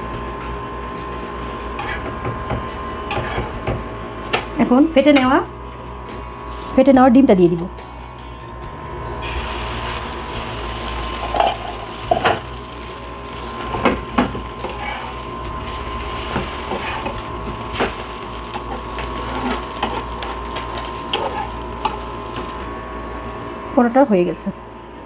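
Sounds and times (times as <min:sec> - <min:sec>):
egg sizzling on griddle: 0:09.1 - 0:23.5
metal spatula scraping pan: 0:13.7 - 0:15.2, 0:16.2 - 0:18.0, 0:18.6 - 0:20.3, 0:21.1 - 0:22.1.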